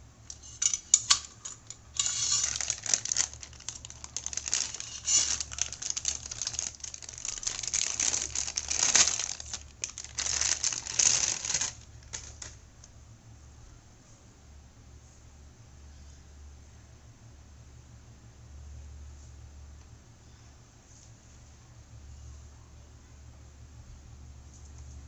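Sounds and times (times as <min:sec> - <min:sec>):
plastic bag crinkling: 0:00.3 - 0:12.6.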